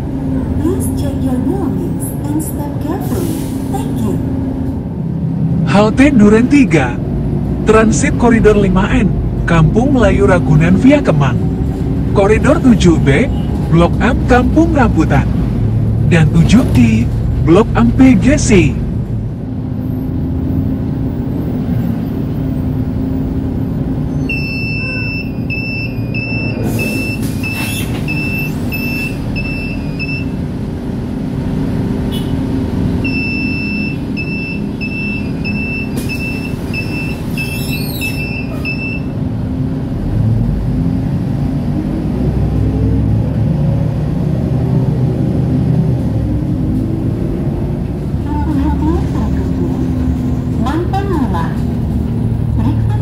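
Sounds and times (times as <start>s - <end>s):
bus engine and road rumble: 0.0s - 53.0s
electronic warning beeps: 24.2s - 30.4s, 33.0s - 39.2s.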